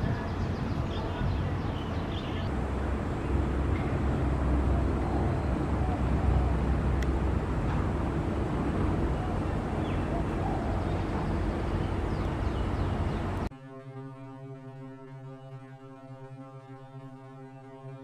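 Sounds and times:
traffic rumble: 0.0 - 13.5.

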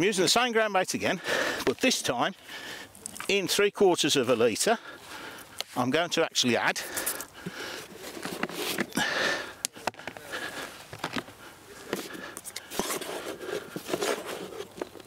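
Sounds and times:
plastic tubs and buckets handled: 1.2 - 2.1, 6.8 - 15.0.

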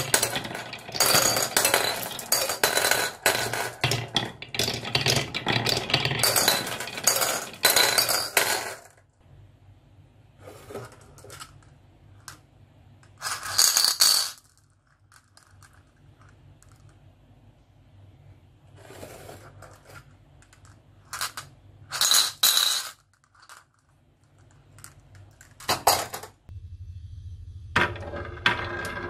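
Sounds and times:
marbles clinking into bowls: 0.0 - 8.9, 13.2 - 15.9, 19.6 - 26.2
marbles rolling on wooden tracks: 0.0 - 8.9, 27.8 - 29.0.

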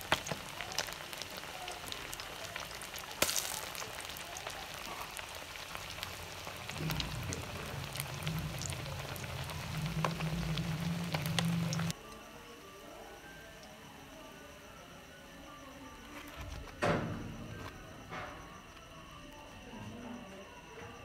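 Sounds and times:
fish deep-frying in oil: 0.0 - 12.0
low steady hum: 6.3 - 12.0.

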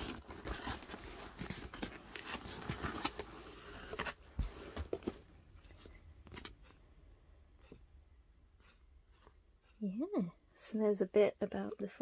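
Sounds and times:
cardboard box being opened: 0.0 - 5.2.

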